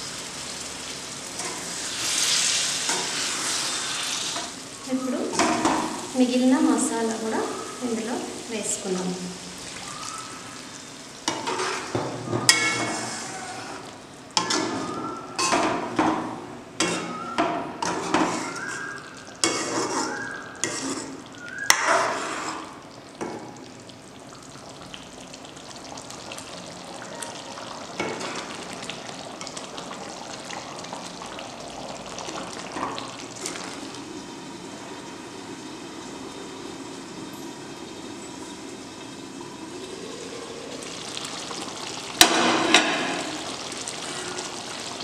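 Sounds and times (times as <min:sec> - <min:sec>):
curry sizzling: 0:00.0 - 0:45.0
ladle scraping metal pan: 0:11.3 - 0:13.8, 0:19.4 - 0:22.7.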